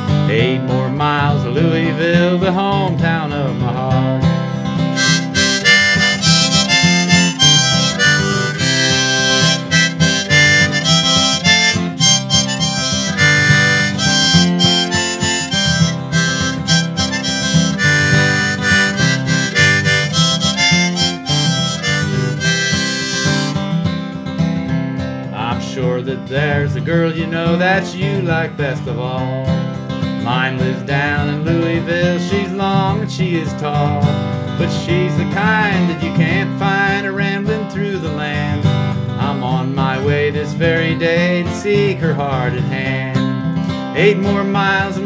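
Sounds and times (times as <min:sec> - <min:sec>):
strummed acoustic guitar: 0:00.0 - 0:45.0
harmonica melody: 0:04.5 - 0:23.9.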